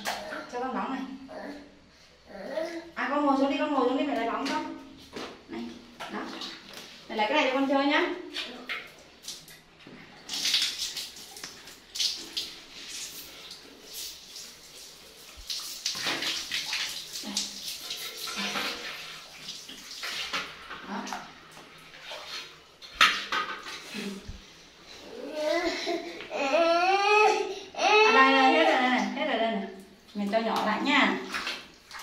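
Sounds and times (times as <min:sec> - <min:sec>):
water splashing in a tub: 0:03.7 - 0:24.6, 0:27.8 - 0:32.0.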